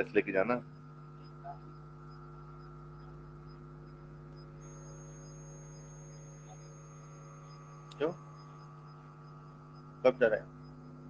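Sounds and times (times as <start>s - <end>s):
electrical mains hum: 0.0s - 11.0s
faint high ticking: 0.0s - 11.0s
thin high whine: 0.0s - 11.0s.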